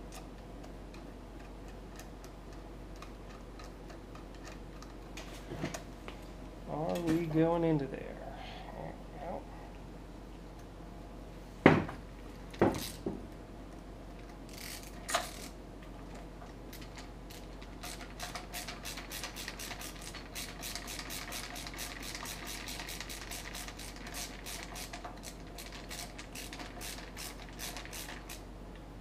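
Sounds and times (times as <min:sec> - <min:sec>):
knock: 0:11.6 - 0:12.0
screwdriver ratchet clicking: 0:16.8 - 0:28.4.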